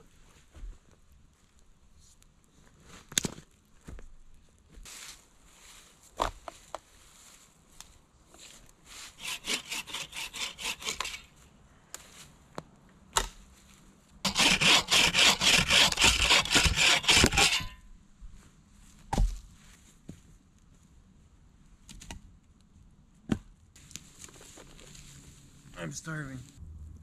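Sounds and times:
hand saw cutting branch: 9.2 - 11.3, 14.3 - 17.8.

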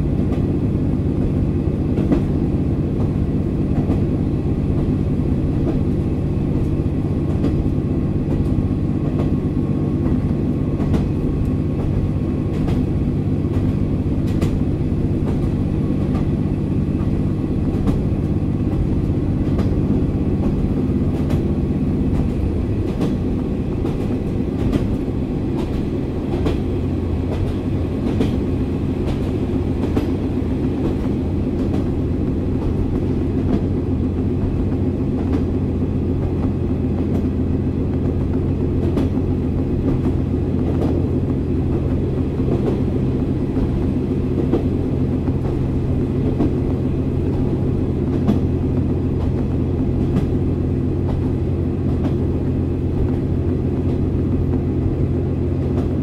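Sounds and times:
wheels clicking over rail joints: 10.0 - 52.3.

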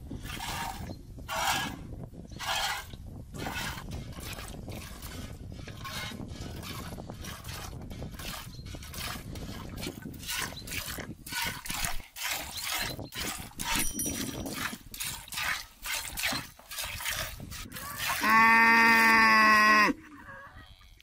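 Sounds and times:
milk squirting into metal pail: 2.4 - 18.3.

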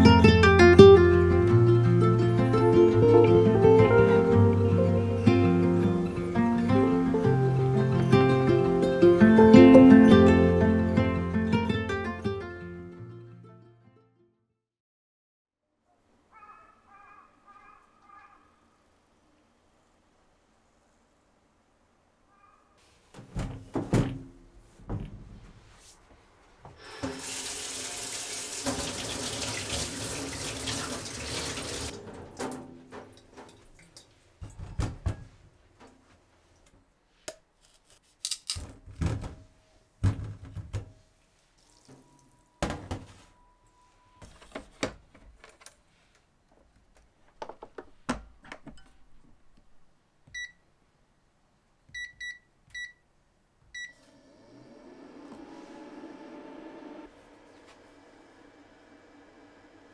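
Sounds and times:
knocks and clunks of handling: 23.1 - 25.6, 34.4 - 36.0, 38.5 - 41.0, 44.2 - 49.1
tap running into sink: 26.8 - 33.6.

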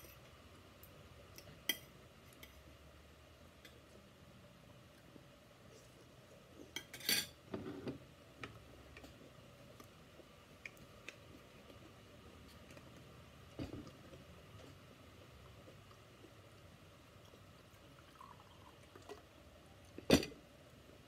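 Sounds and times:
cutlery clinking on a ceramic plate: 6.8 - 7.7.

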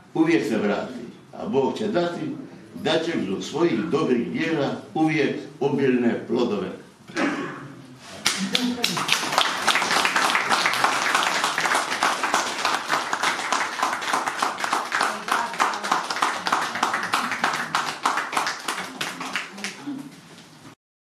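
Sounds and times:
audience applauding: 8.2 - 20.1.

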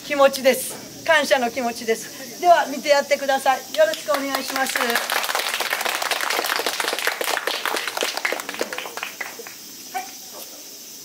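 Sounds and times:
people applauding: 3.7 - 9.7.

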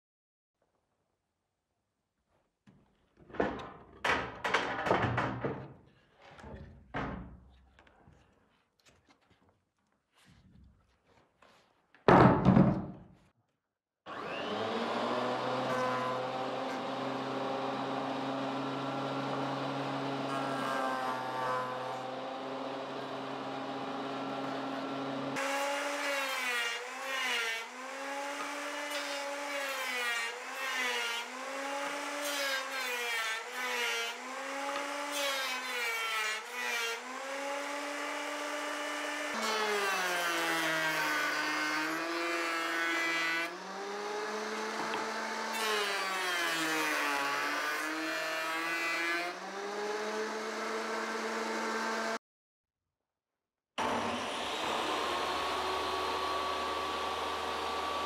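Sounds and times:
jointer planer cutting wood: 14.1 - 52.2, 53.8 - 58.0.

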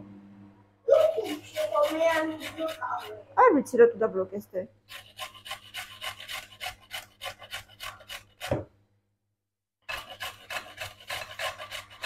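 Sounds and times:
carrot grating on metal grater: 0.9 - 3.3, 4.9 - 8.6, 9.8 - 12.0.

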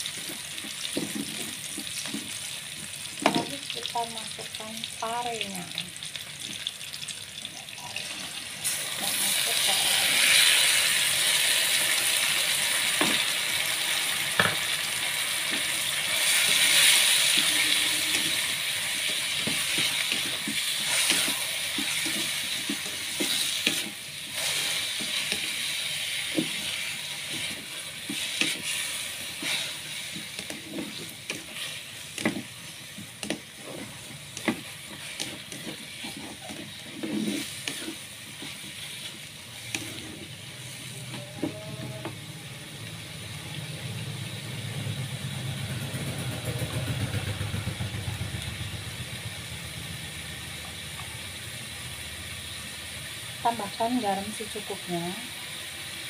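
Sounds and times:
food sizzling in hot oil: 0.0 - 45.8, 46.5 - 56.0
spatula scraping a pan: 15.4 - 42.2.

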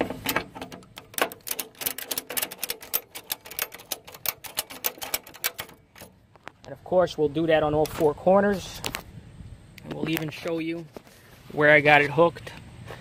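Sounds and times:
ratchet strap clicking: 0.2 - 6.1.

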